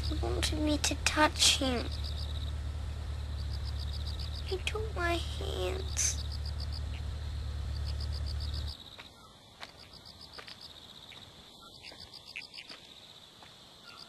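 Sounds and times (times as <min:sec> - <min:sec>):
low hum: 0:00.0 - 0:08.8
crickets chirping: 0:00.0 - 0:14.0.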